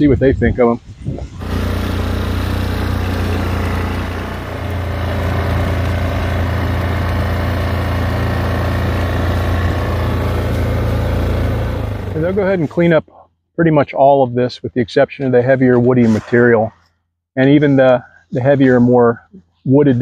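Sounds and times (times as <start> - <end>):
small engine running: 1.3 - 12.9.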